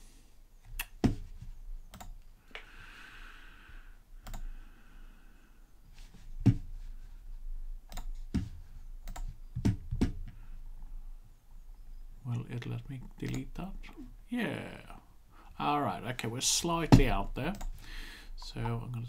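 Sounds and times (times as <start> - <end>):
computer mouse clicks: 1.9 - 2.7, 4.2 - 4.5, 7.9 - 8.2, 9.0 - 9.4, 13.2 - 13.5.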